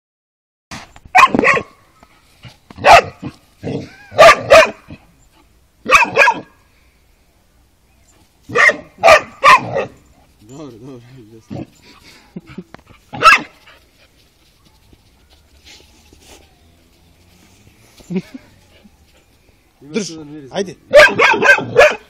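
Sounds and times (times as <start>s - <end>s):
dog barking: 1.1s - 1.8s, 2.8s - 3.3s, 4.1s - 5.0s, 5.8s - 6.6s, 8.5s - 10.0s, 13.1s - 13.6s, 20.9s - 22.0s.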